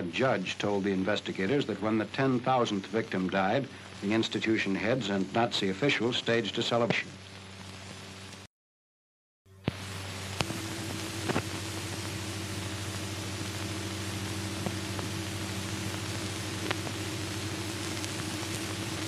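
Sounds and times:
film soundtrack hiss: 0.0 - 8.5, 9.5 - 19.0
low hum: 9.6 - 19.0
sharp clicks and pops: 10.4 - 11.6, 16.0 - 19.0.

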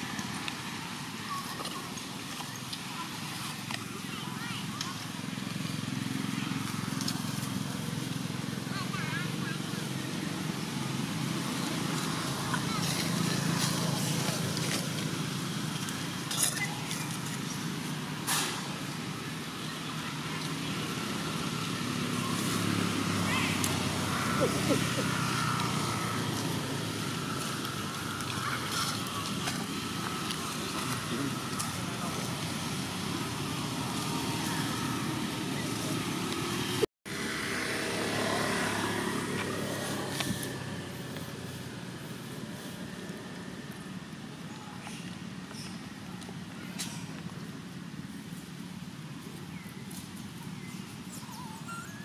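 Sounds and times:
monkeys scuffling: 0.0 - 18.2, 21.8 - 36.8.

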